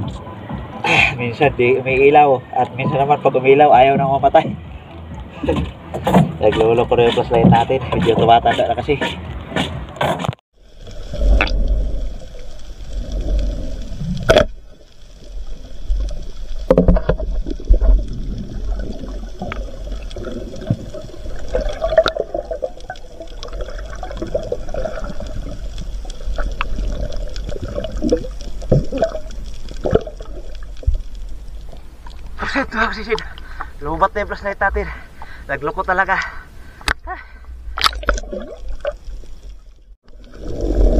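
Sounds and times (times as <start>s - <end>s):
underwater water rumble: 10.6s - 34.6s, 37.5s - 40.9s.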